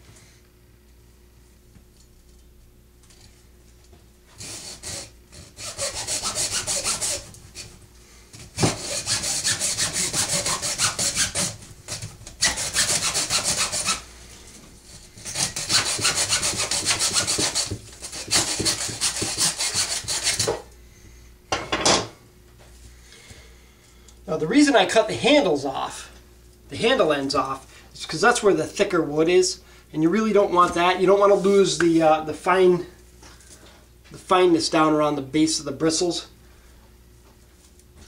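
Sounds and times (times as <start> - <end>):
hacksaw cutting wood: 4.4 - 7.3, 8.6 - 14.0, 15.2 - 20.6.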